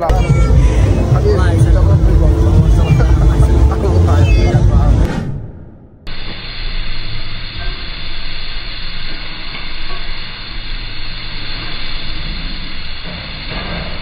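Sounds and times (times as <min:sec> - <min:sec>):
noodles sizzling on griddle: 0:06.1 - 0:14.0.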